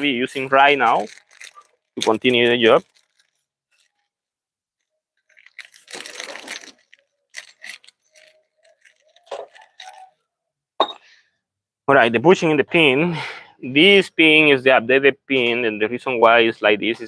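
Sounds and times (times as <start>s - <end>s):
small metal parts clinking: 0.0s - 4.1s, 4.8s - 10.2s
packaging rustling: 0.0s - 10.1s.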